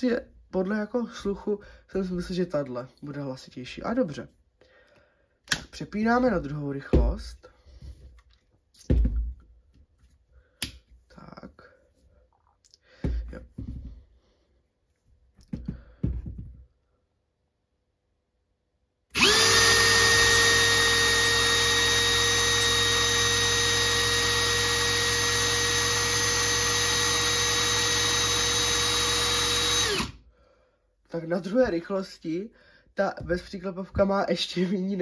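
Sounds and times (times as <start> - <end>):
cordless drill high whine: 19.1 - 30.2.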